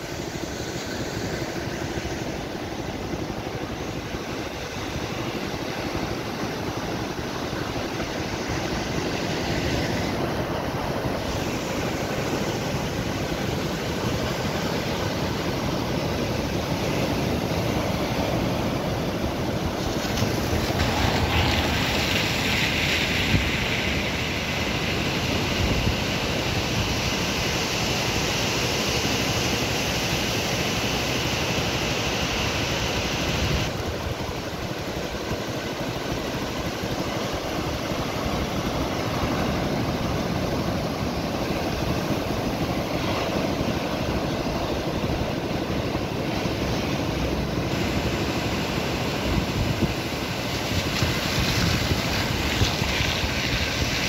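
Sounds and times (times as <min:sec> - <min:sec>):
surf breaking on a pebble shore: 0:00.0 - 0:54.0
wind on the microphone: 0:49.0 - 0:54.0.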